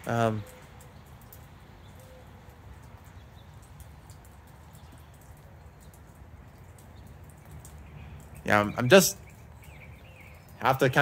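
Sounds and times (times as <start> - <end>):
light ticks: 0.0 - 8.4.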